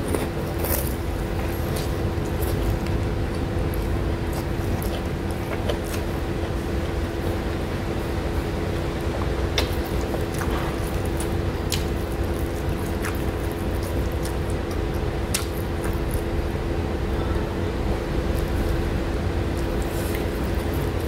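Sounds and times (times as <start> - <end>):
chewing and mouth smacks: 0.0 - 7.6, 8.7 - 16.4, 19.5 - 21.0
low background hum: 0.0 - 21.0.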